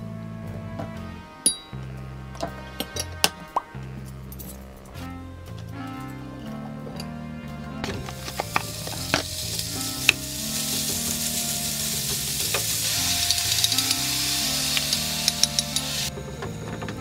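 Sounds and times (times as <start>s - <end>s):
meat sizzling in a frying pan: 8.2s - 16.1s.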